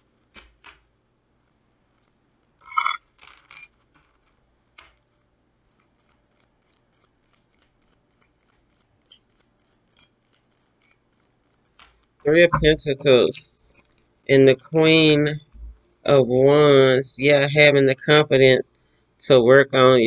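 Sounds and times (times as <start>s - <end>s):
cards being shuffled: 0.1s - 0.9s, 3.1s - 5.2s.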